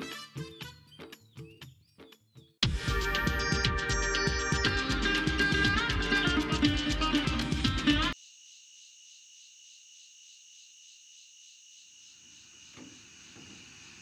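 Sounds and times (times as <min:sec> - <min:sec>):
music: 0:00.0 - 0:08.2
crickets chirping: 0:08.2 - 0:14.0
faint knock: 0:12.8 - 0:13.7.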